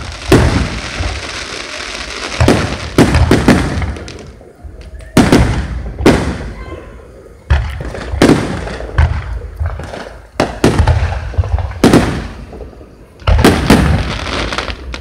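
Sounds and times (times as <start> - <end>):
fireworks shells bursting: 0.0 - 4.4.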